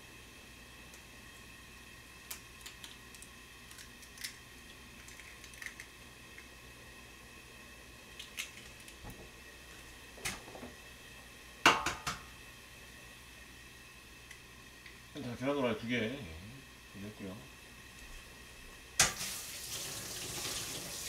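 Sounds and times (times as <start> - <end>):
eggs cracking into pan: 2.3 - 6.5, 8.1 - 9.3.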